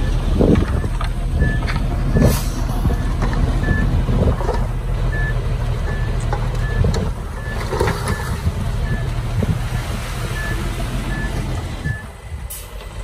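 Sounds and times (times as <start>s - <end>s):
reversing alarm beeping: 0.0s - 3.9s, 5.1s - 9.1s, 9.7s - 12.1s
diesel engines rumbling: 0.0s - 13.0s.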